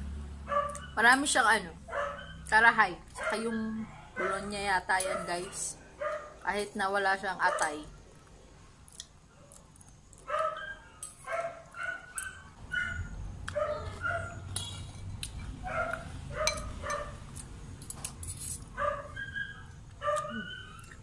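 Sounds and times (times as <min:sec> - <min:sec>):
dog yapping: 0:01.9 - 0:02.5, 0:10.3 - 0:14.5, 0:15.7 - 0:17.2, 0:18.8 - 0:21.0.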